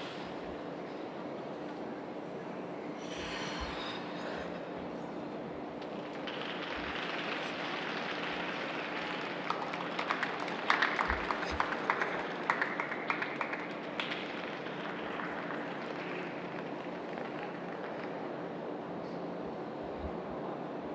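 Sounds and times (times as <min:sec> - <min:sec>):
steady background hum: 0:00.0 - 0:20.9
people clapping: 0:05.6 - 0:18.6.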